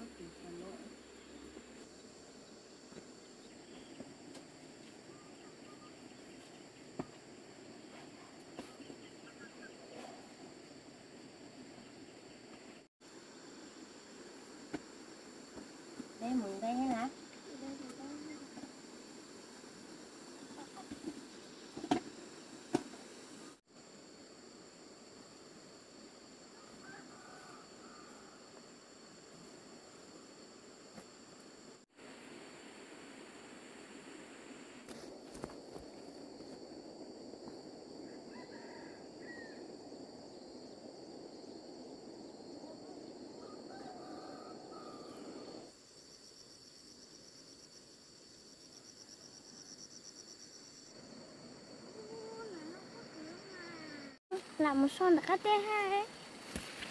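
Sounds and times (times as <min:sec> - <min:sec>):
insects buzzing: 0:00.0 - 0:56.9
faint bird chirps: 0:05.0 - 0:06.6, 0:08.6 - 0:10.2
faint hiss with high whine: 0:12.8 - 0:56.9
rustling noise: 0:56.1 - 0:56.9.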